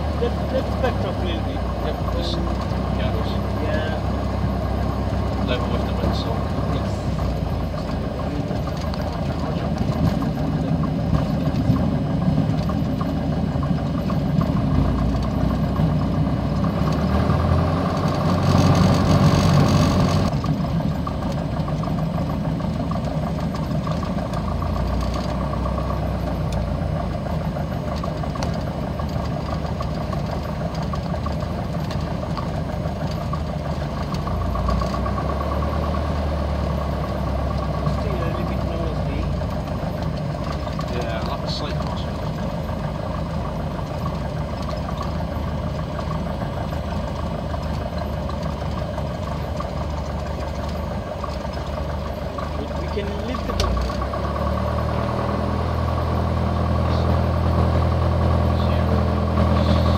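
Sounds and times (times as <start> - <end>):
aircraft piston engine running: 0.0 - 59.9.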